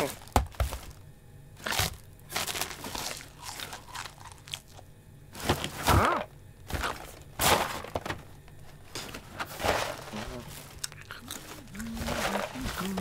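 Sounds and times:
packaging rustling and crunching: 0:00.0 - 0:01.0, 0:01.6 - 0:04.8, 0:08.8 - 0:13.0.

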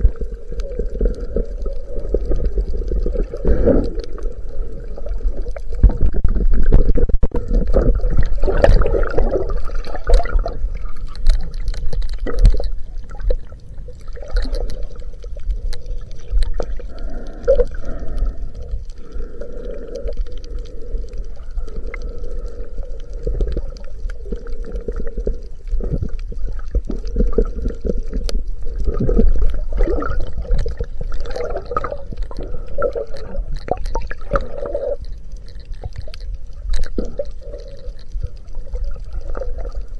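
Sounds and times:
muffled underwater water sloshing: 0:00.0 - 0:39.9
small clicks: 0:11.0 - 0:28.4, 0:30.2 - 0:39.9.

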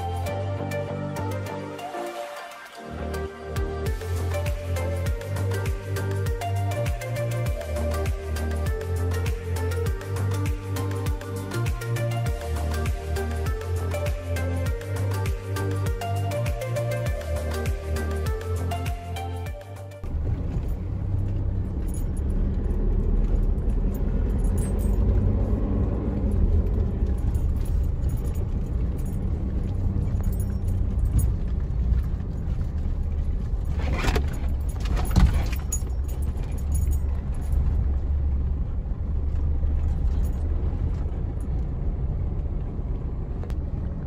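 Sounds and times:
engine and tyres rumbling: 0:00.0 - 0:44.0
vehicle jolting over bumps: 0:20.0 - 0:42.1.

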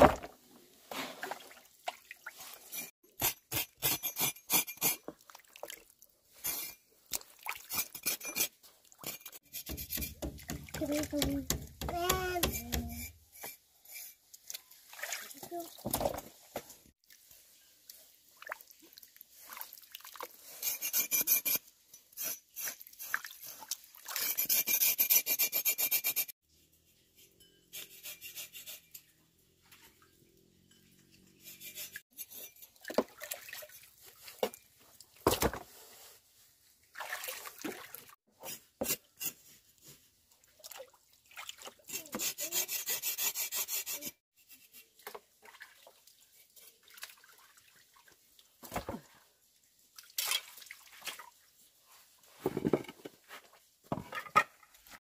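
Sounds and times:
water splashes: 0:14.5 - 0:15.8, 0:32.8 - 0:34.2, 0:36.8 - 0:38.2, 0:40.4 - 0:41.9, 0:45.4 - 0:49.2, 0:49.9 - 0:51.5.

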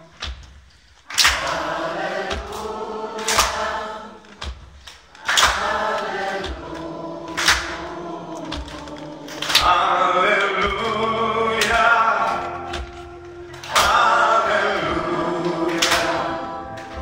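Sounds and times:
instrumental accompaniment: 0:05.4 - 0:17.0
loud accented chords: 0:06.5 - 0:17.0
man singing into microphone: 0:09.6 - 0:17.0.

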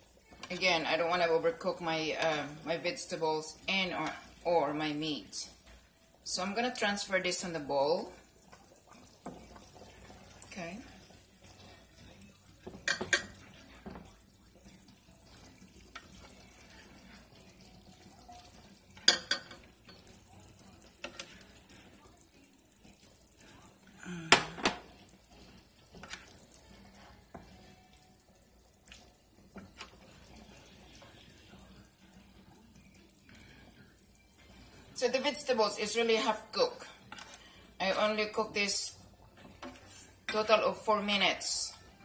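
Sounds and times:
utensils clinking against pan: 0:19.0 - 0:20.2.

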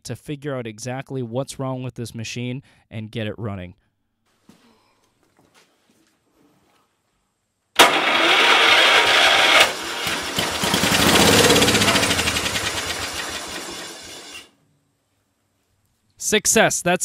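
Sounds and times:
small engine running: 0:07.8 - 0:14.5
starter motor cranking: 0:07.8 - 0:14.5.

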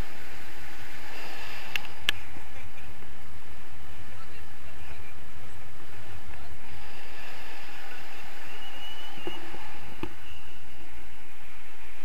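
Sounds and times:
wind rumbling on microphone: 0:00.0 - 0:12.0
high whistle: 0:08.1 - 0:10.8.

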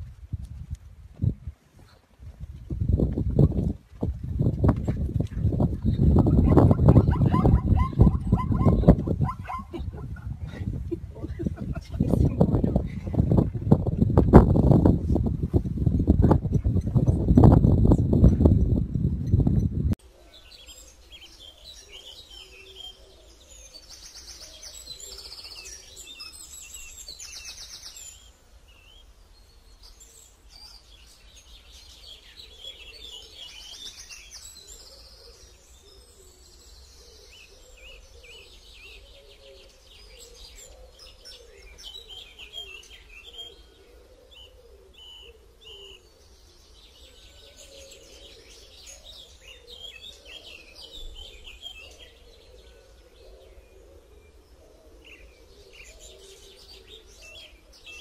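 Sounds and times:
animal chirps and trills: 0:06.3 - 0:10.3.

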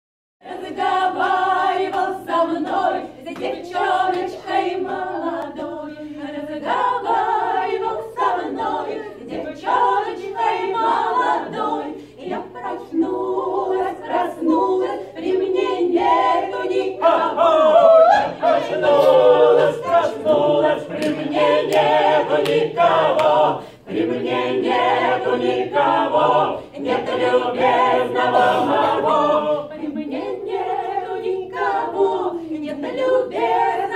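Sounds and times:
group singing a cappella: 0:00.4 - 0:33.9.

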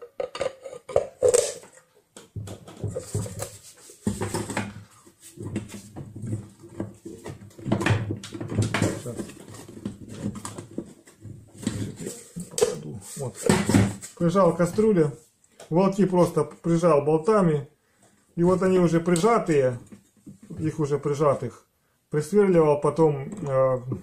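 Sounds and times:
knocks and clatter on wooden table: 0:00.0 - 0:14.1.

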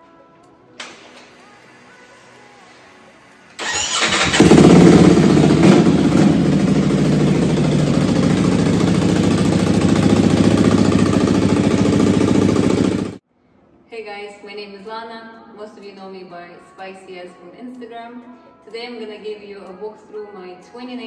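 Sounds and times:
motorcycle engine revving and idling: 0:03.6 - 0:13.2
motorcycle starter cranking: 0:03.6 - 0:13.2.

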